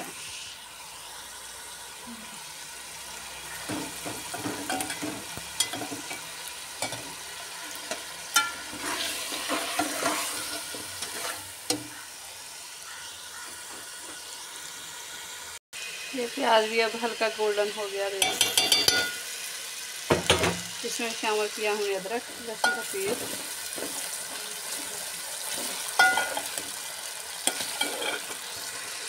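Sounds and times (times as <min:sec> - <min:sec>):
food sizzling in a pot: 0:00.0 - 0:29.0
spatula scraping a metal pot: 0:07.7 - 0:11.8, 0:22.6 - 0:26.7, 0:27.4 - 0:28.8.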